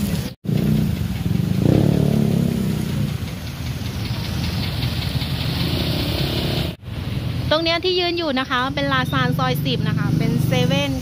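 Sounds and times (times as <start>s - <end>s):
watery hiss on flooded street: 0.0s - 7.9s
motorbike engine humming: 0.4s - 7.6s.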